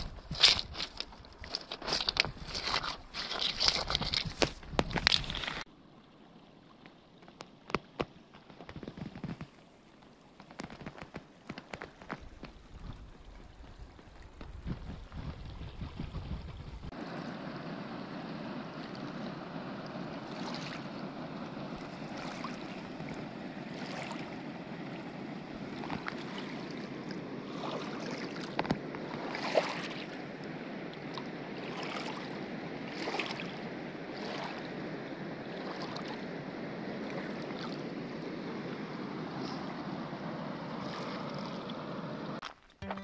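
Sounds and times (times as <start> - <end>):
water lapping on pebbles: 0.0 - 5.7, 6.8 - 17.4, 18.6 - 34.9, 35.5 - 38.7, 42.4 - 43.0
river water rushing: 16.9 - 42.4.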